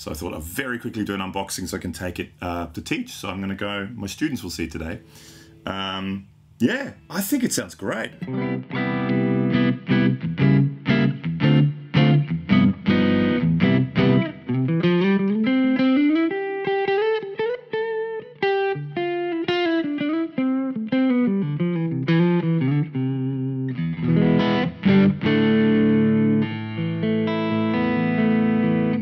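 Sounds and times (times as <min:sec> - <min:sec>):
electric guitar strummed chords: 0:07.8 - 0:29.0
electric guitar single-note lines: 0:08.1 - 0:29.0.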